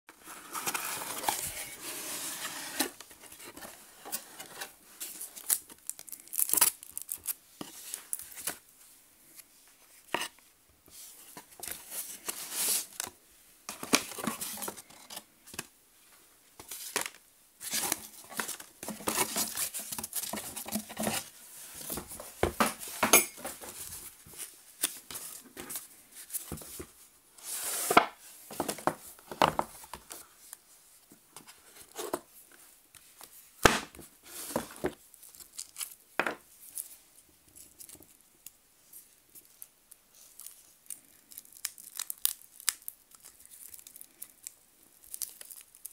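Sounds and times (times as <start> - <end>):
cardboard and foam rustling: 0.2 - 6.2, 13.7 - 15.6, 16.6 - 30.3, 33.9 - 35.0.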